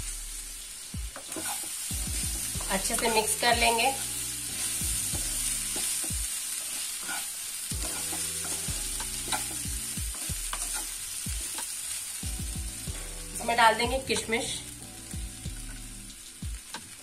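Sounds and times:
food sizzling: 0:00.0 - 0:17.0
spatula scraping a frying pan: 0:01.2 - 0:01.9, 0:03.9 - 0:11.7.

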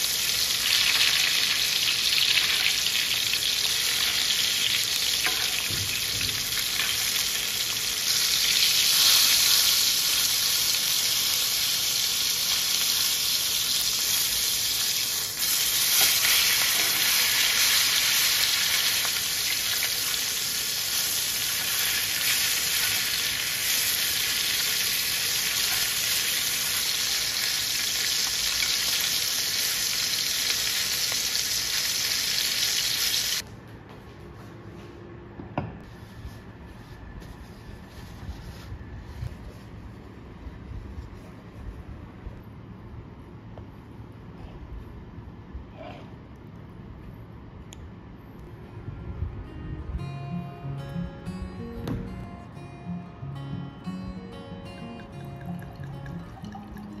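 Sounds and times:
steak sizzling in butter: 0:06.5 - 0:33.4.

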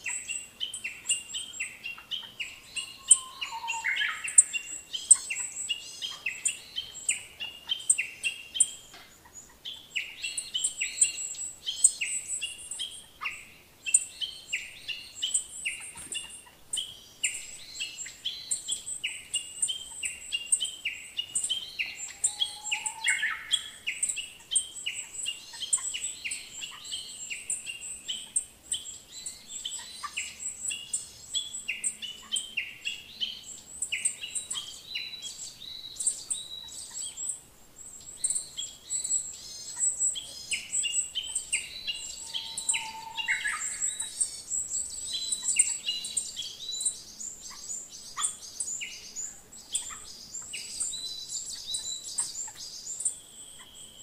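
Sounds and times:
birds chirping: 0:00.0 - 0:54.0.

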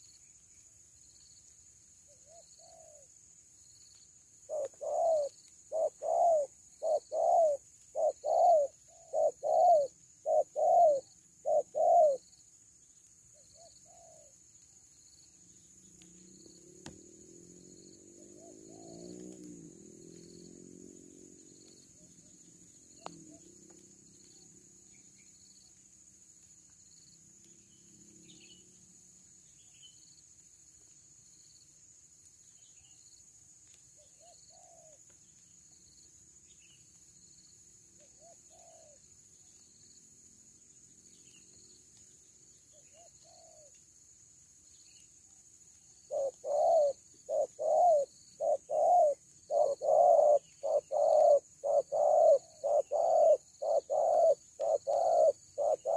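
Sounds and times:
doves cooing: 0:04.5 - 0:12.2, 0:17.5 - 0:22.4, 0:38.2 - 0:39.0, 0:46.1 - 0:55.9
high insect buzz: 0:46.0 - 0:55.9.

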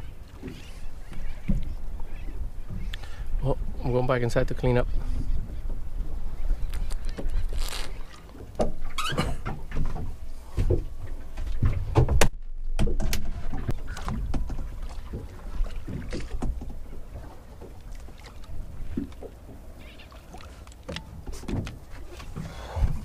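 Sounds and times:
knocks and bumps in boat cabin: 0:08.6 - 0:16.9.

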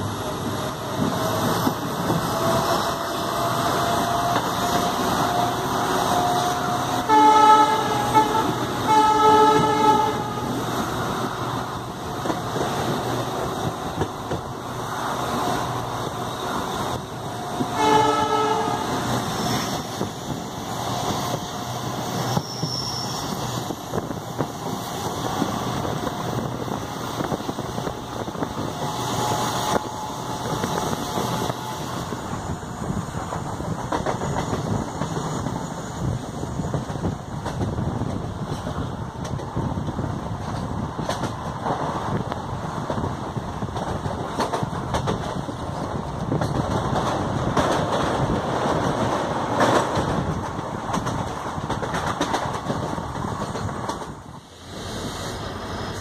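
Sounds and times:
running train rumble: 0:00.0 - 0:56.0
locomotive horn blasts: 0:05.2 - 0:10.6, 0:17.6 - 0:19.0.

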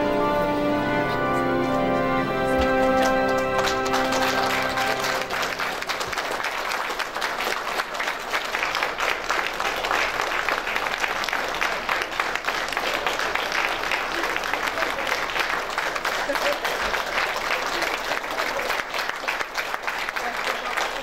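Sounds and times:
music: 0:00.0 - 0:06.0
crowd applauding: 0:00.9 - 0:21.0.

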